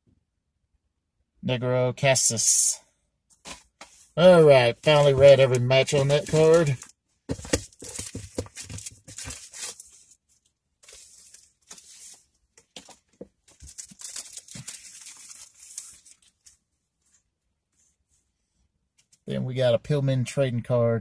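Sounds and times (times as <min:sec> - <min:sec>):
packaging rustling with clicks: 0:04.8 - 0:10.2, 0:10.8 - 0:16.6.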